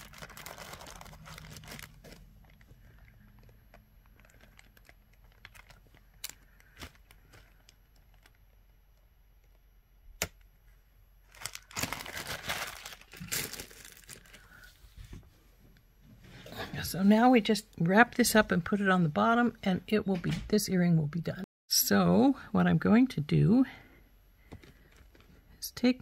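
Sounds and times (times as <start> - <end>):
plastic bag crinkling: 0.0 - 8.8, 11.2 - 14.7.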